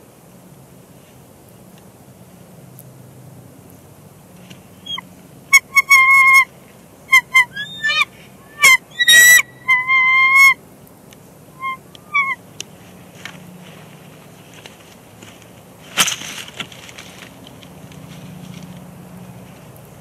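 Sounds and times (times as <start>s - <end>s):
eagles whistled chirping: 4.8s - 6.5s, 7.1s - 10.6s, 11.5s - 12.4s
harsh eagle call: 4.8s - 10.6s, 11.5s - 12.5s.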